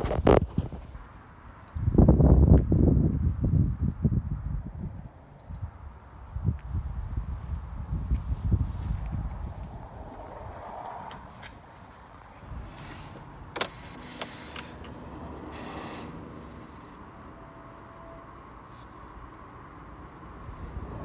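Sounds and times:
low outdoor rumble: 6.0s - 21.0s
phone handling noise: 13.4s - 15.0s.

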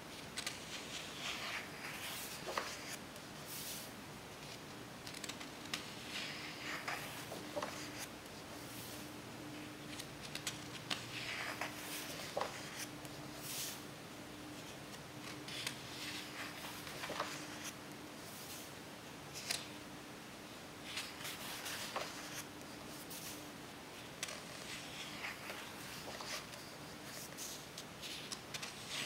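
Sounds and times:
faint steady hum: 0.0s - 29.0s
paper rustling and flapping: 0.1s - 3.0s, 3.7s - 9.1s, 9.7s - 12.9s, 15.2s - 17.8s, 20.8s - 23.4s, 24.2s - 29.0s
book pages turning: 0.1s - 13.9s, 14.5s - 18.7s, 19.3s - 19.7s, 20.8s - 23.4s, 24.1s - 29.0s.

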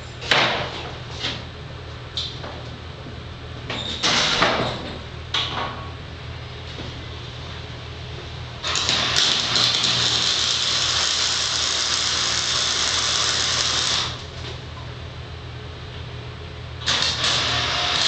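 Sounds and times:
welding arc crackling and sizzling: 8.6s - 14.4s, 16.8s - 18.0s.

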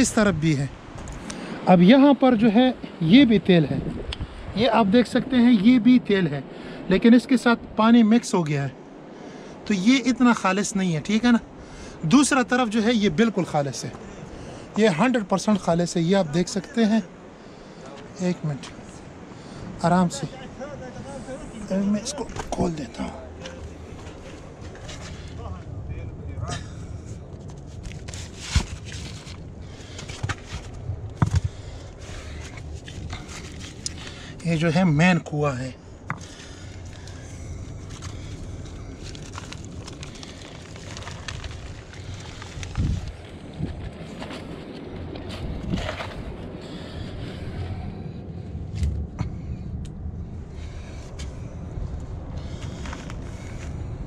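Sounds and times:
steady low rumble: 8.7s - 54.0s
stones knocking and scraping on rock: 27.4s - 34.1s, 36.0s - 37.2s, 37.8s - 44.6s.

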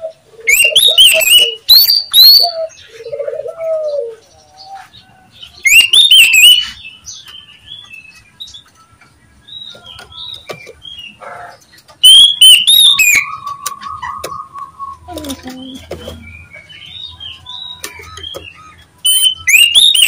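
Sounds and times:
bird whistling sharp notes: 5.6s - 6.8s, 12.0s - 15.4s, 17.0s - 20.0s.

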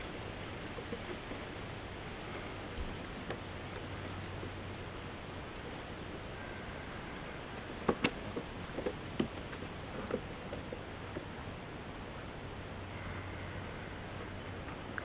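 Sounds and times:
steady hiss: 0.0s - 15.0s
otters scrambling on wooden boards: 5.6s - 11.4s.

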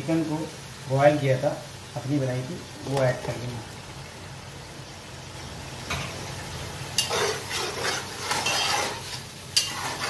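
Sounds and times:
food sizzling: 0.0s - 10.0s
spatula scraping metal pot: 7.0s - 10.0s.

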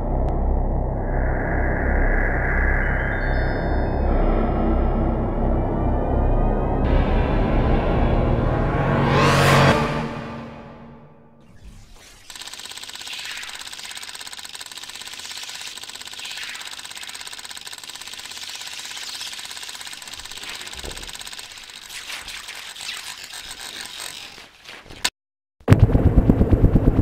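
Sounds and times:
thin steady electronic tone: 0.4s - 4.8s, 11.6s - 23.1s
fast mechanical chattering: 11.6s - 24.7s.

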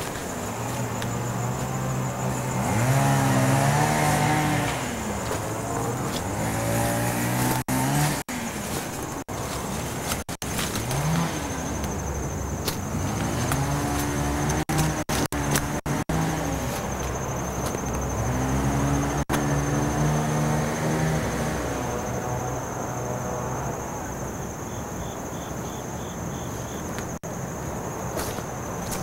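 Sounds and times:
motor revving: 1.5s - 8.7s, 12.9s - 17.0s.

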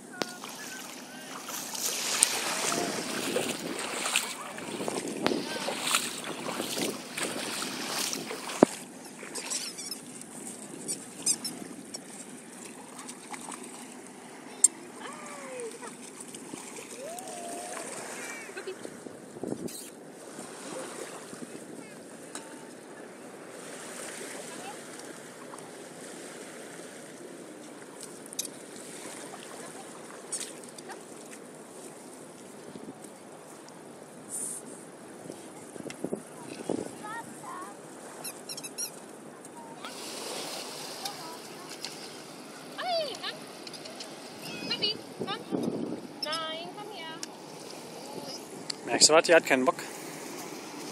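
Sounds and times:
lapping river water: 0.0s - 50.9s
wind: 0.0s - 50.9s
squeaky toy squeaking: 9.4s - 10.0s, 10.9s - 11.6s, 38.2s - 39.0s.

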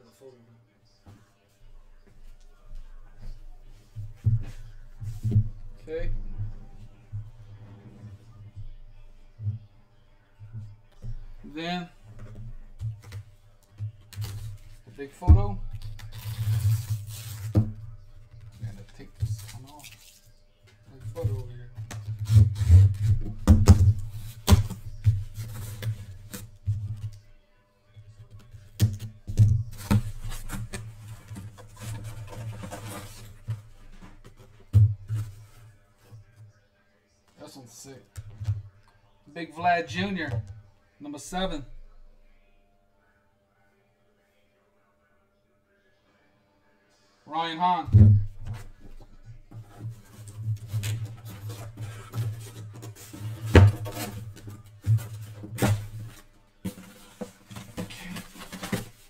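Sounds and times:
cards rustling and scraping: 49.6s - 59.0s.

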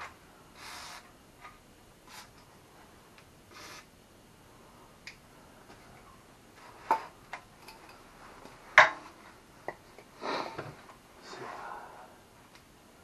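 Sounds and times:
aerosol spray hiss: 0.6s - 1.1s, 3.5s - 3.9s.

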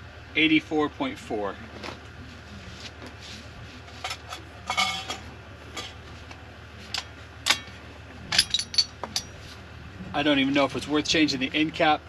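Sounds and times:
short metallic ring: 8.3s - 9.4s.

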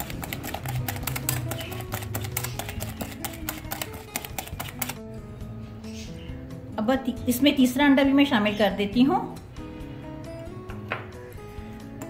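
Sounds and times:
whisk clicking against glass bowl: 0.0s - 5.0s
soft background music: 0.0s - 12.0s.

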